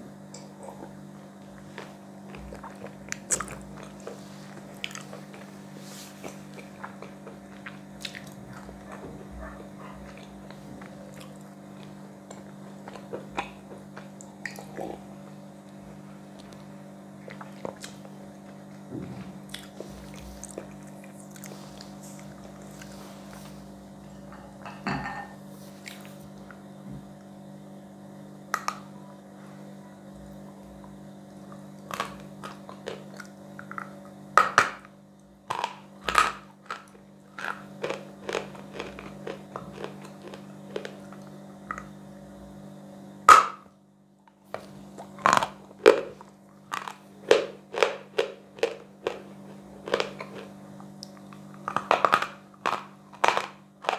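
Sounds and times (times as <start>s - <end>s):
chalk crunching in mouth: 35.5s - 41.9s, 44.6s - 53.9s.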